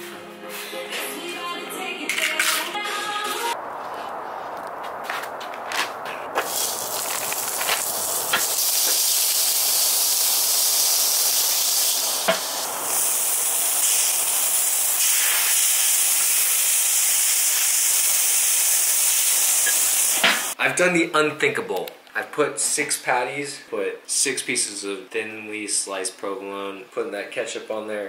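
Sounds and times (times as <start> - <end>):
patties sizzling on grill: 6.4 - 20.6.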